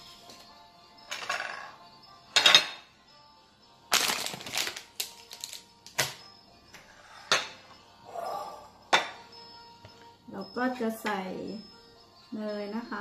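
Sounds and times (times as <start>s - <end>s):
faint background music: 0.0s - 13.0s
porcelain dishes clattering on table: 1.1s - 2.9s, 7.2s - 7.6s, 8.9s - 9.3s.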